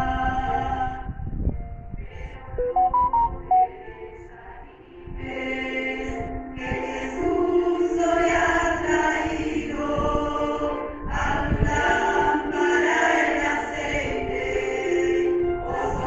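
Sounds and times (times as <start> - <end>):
choir singing a worship song: 0.0 - 16.0
musical accompaniment: 2.6 - 4.2.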